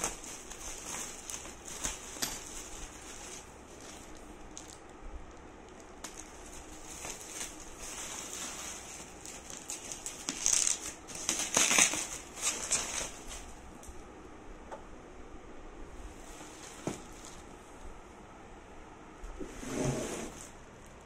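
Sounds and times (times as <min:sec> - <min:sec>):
bubble wrap crinkling: 0:00.0 - 0:13.8, 0:16.2 - 0:17.7.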